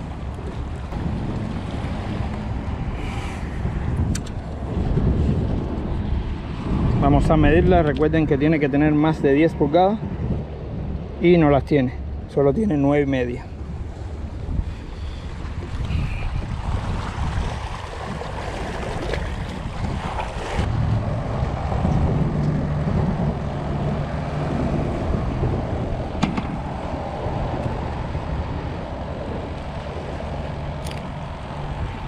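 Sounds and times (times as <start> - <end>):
wind buffeting microphone: 0.0 - 32.0
small clicks from handling gear: 4.1 - 4.4, 30.8 - 31.1
waves lapping against seawall: 13.5 - 31.9.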